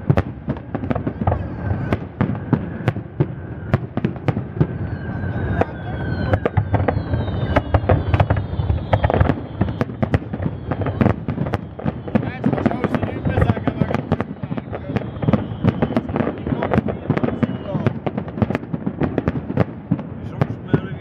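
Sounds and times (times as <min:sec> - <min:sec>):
falling firework whistles: 0:00.0 - 0:21.0
firework shells bursting: 0:06.3 - 0:20.6.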